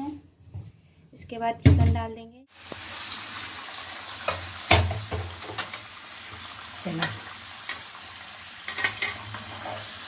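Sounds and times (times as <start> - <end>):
chicken sizzling in hot oil: 2.5 - 10.0.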